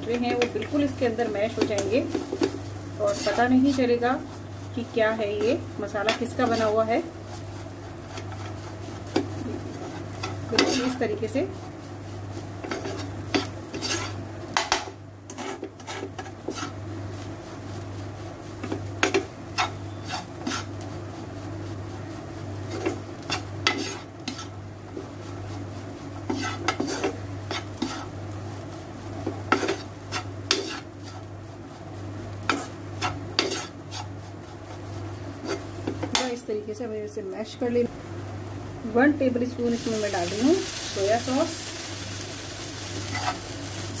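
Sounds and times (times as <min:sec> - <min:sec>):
metal spatula scraping a pan: 0:01.5 - 0:04.0, 0:05.3 - 0:11.6, 0:12.6 - 0:14.2, 0:15.3 - 0:16.8, 0:19.0 - 0:20.8, 0:22.6 - 0:24.6, 0:26.2 - 0:28.2, 0:29.5 - 0:31.3, 0:32.5 - 0:34.2, 0:35.4 - 0:36.4, 0:42.9 - 0:43.5.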